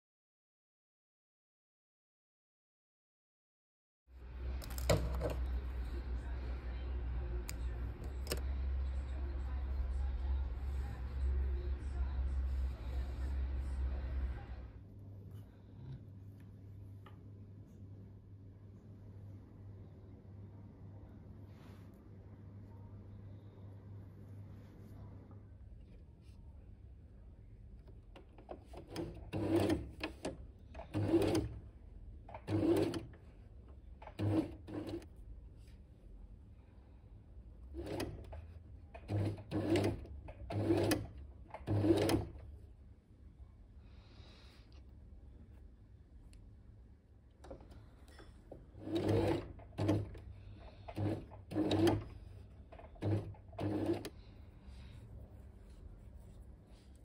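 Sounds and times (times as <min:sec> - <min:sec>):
electric sewing machine stitching: 0:28.6 - 0:31.6, 0:32.3 - 0:33.2, 0:34.0 - 0:35.0, 0:39.0 - 0:42.4, 0:48.8 - 0:54.2.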